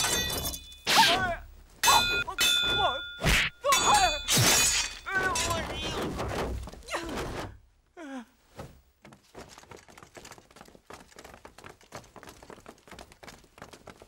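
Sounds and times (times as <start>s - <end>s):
footsteps of group walking: 9.0s - 14.0s.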